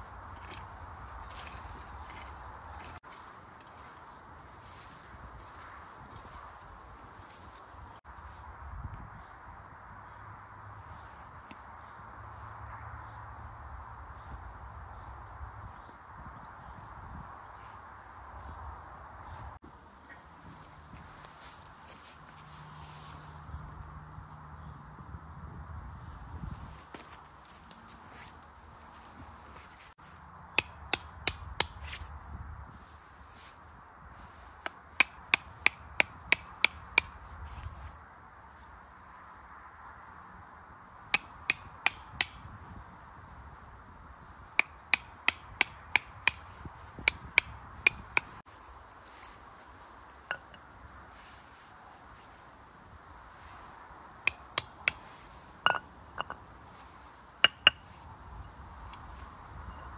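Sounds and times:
camp cookware clinking: 55.6s - 56.4s.

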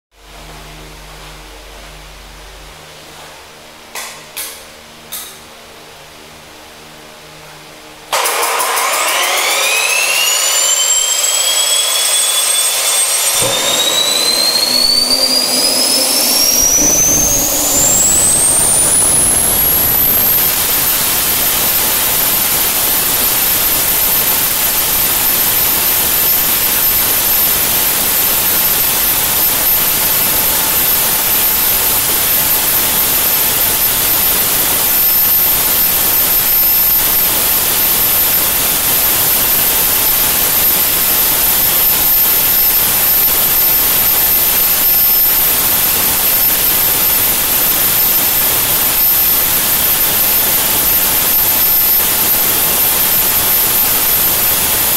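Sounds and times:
gas turbine whine: 0.1s - 54.9s
loud rushing noise: 13.3s - 21.3s.

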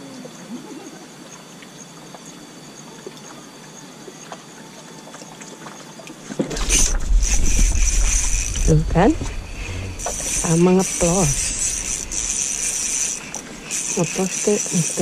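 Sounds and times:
faint water ambience: 0.0s - 15.0s
fishing rod and reel rattling: 6.3s - 15.0s
small ticks: 10.0s - 15.0s.

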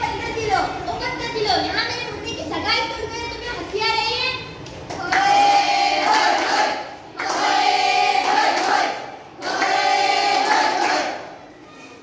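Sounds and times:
students singing in unison: 5.1s - 11.3s.

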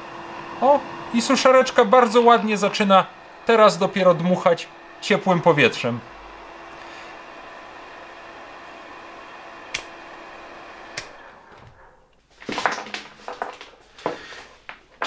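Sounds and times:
hair dryer running: 0.0s - 11.9s
switch clicking: 9.7s - 10.0s, 10.9s - 11.2s
plastic hair dryers clattering: 12.4s - 13.8s.

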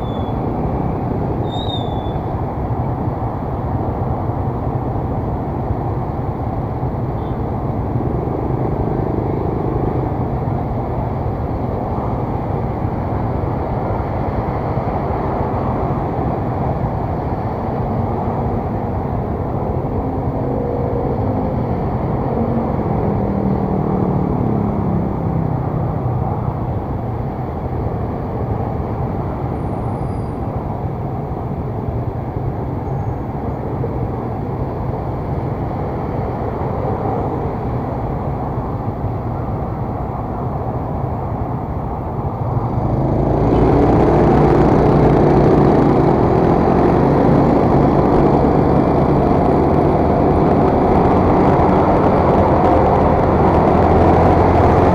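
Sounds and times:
passing traffic: 0.0s - 54.9s
wind noise: 0.0s - 54.9s
scooter engine: 42.3s - 54.9s.

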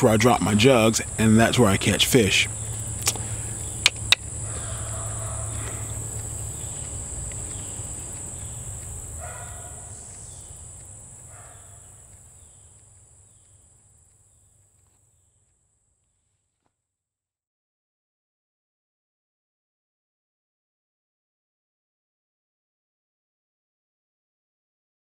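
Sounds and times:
faint calls: 0.0s - 13.6s
low hum: 0.0s - 16.3s
high-pitched insect chirring: 0.1s - 14.4s
sharp clicks: 2.7s - 4.4s.

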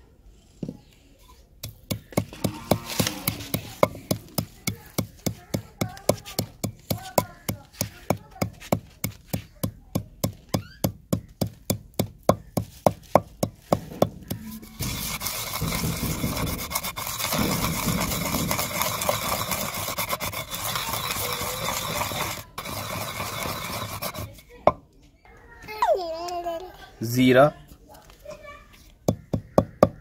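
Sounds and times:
pestle grinding scrape: 1.6s - 9.4s, 11.4s - 24.5s
pestle pounding in stone mortar: 1.6s - 24.8s, 29.0s - 30.0s.

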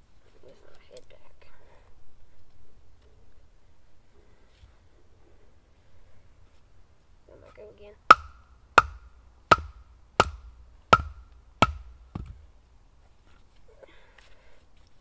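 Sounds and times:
wooden baton striking knife spine: 8.1s - 12.4s.

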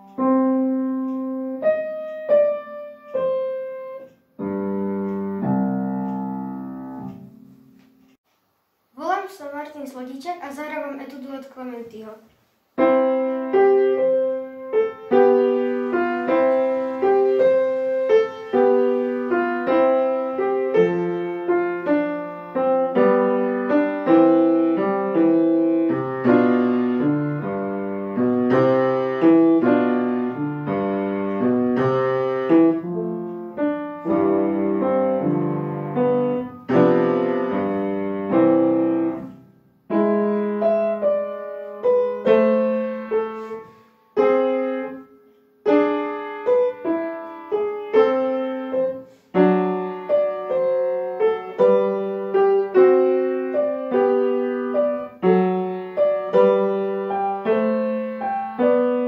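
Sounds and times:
solo piano piece: 0.0s - 8.2s, 12.8s - 59.0s.

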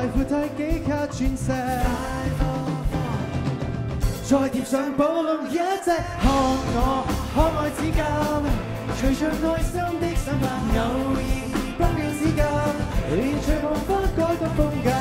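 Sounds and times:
steady drum beat: 0.0s - 4.6s, 6.1s - 15.0s
live pop-rock band: 0.0s - 15.0s
person singing: 0.0s - 15.0s.

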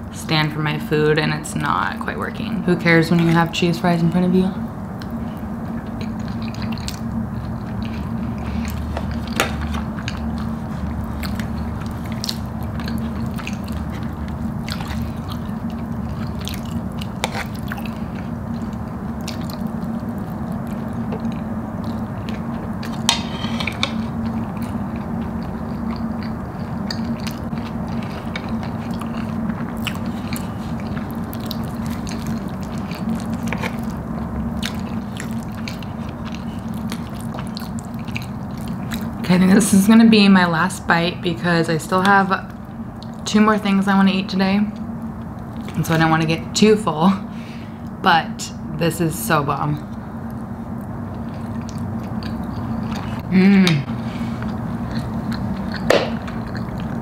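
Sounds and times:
steady low hum: 0.0s - 57.0s
person chewing food: 4.9s - 39.3s, 42.5s - 43.2s, 44.8s - 45.8s, 49.8s - 57.0s.

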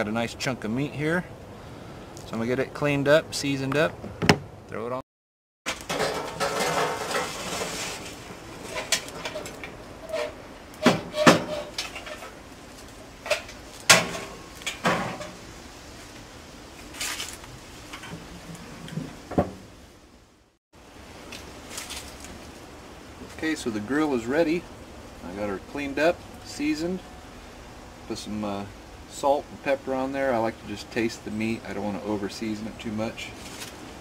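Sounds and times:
metal grill parts clanking: 5.7s - 12.4s, 13.2s - 15.4s.

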